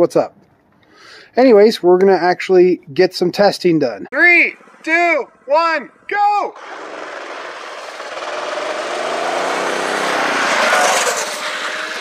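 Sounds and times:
rushing noise: 0:04.2 - 0:12.0
go-kart engine running flat out: 0:06.5 - 0:12.0.

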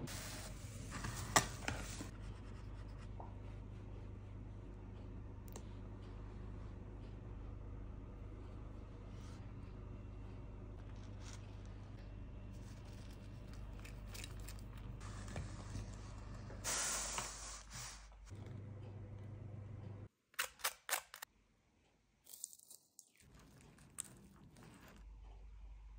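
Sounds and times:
low steady hum: 0:00.0 - 0:16.8, 0:18.0 - 0:20.1
bread crust crackling: 0:22.3 - 0:25.0.

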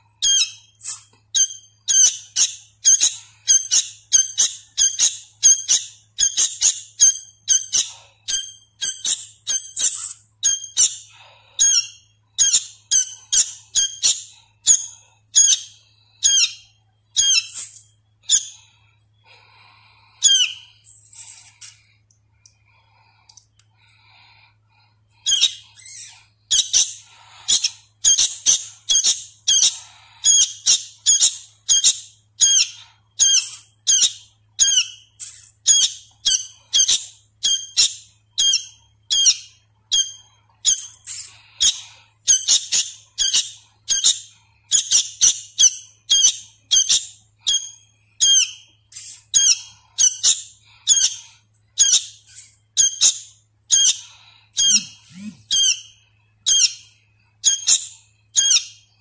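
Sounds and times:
bird chick chirping: 0:25.2 - 0:58.8.

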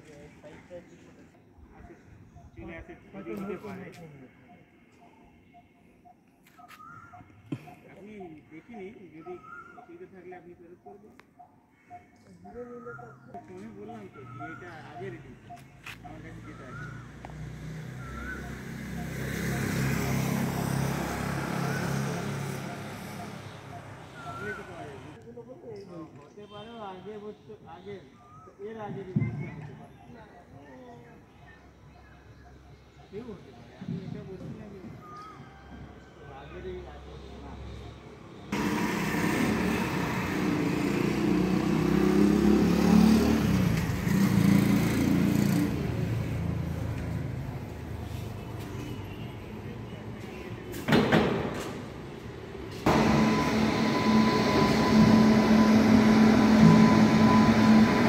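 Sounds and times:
motorcycle passing by: 0:16.3 - 0:25.2, 0:38.4 - 0:48.4, 0:52.8 - 0:58.0.

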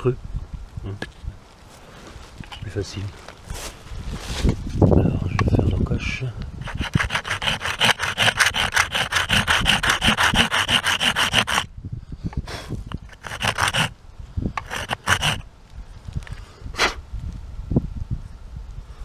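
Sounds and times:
saw cutting bamboo: 0:06.6 - 0:11.7, 0:12.9 - 0:13.9, 0:14.6 - 0:15.4.

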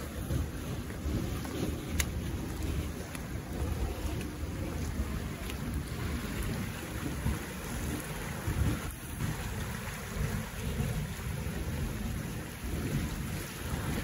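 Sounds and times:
floodwater rushing: 0:00.0 - 0:14.0.

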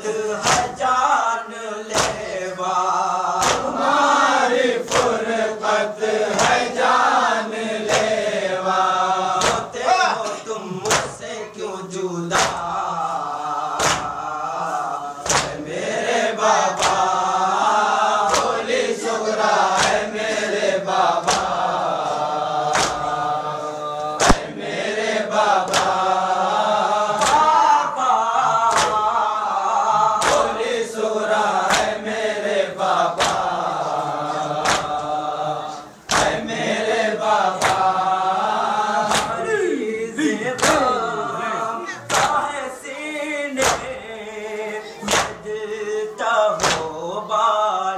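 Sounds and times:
sharp rhythmic slaps: 0:00.0 - 0:47.6
group chanting in unison: 0:00.0 - 0:47.9.

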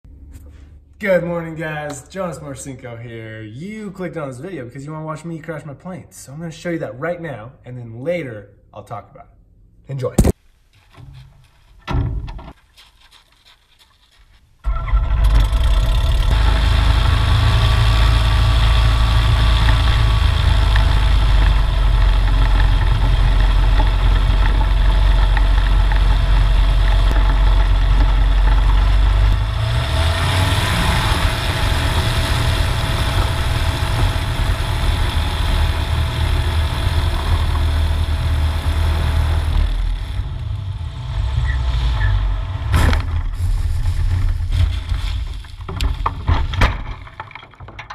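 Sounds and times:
rushing takeoff sound: 0:28.9 - 0:45.5.

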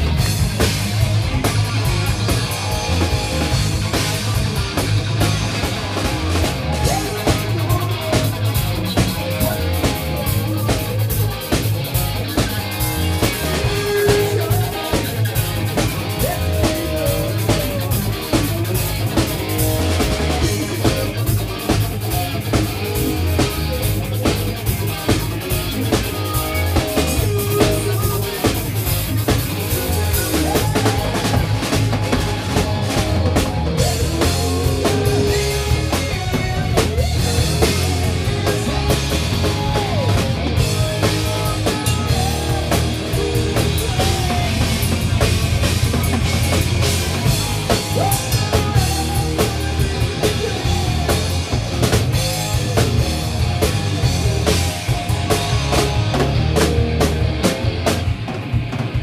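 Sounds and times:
heavy bass drum: 0:00.0 - 0:59.0
live rock band playing: 0:00.0 - 0:59.0
person singing: 0:06.6 - 0:11.3, 0:13.2 - 0:19.2, 0:25.9 - 0:45.4, 0:47.7 - 0:51.6.

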